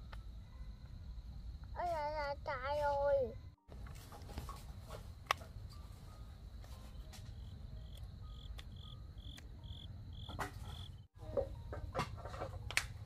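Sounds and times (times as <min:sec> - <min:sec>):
cricket chirping: 0:00.0 - 0:02.5, 0:04.4 - 0:11.9.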